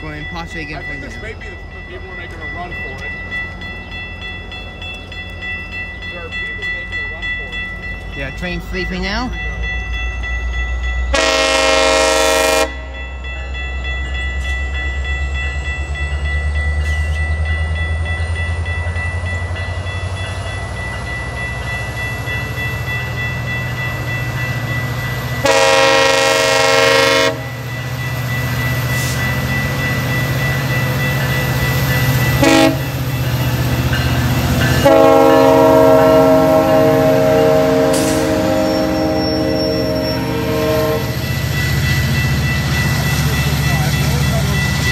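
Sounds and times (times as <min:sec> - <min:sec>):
locomotive engine rumble: 0:00.0 - 0:44.9
locomotive horn blasts: 0:11.1 - 0:13.0, 0:25.4 - 0:27.5, 0:32.4 - 0:33.0, 0:34.8 - 0:41.2.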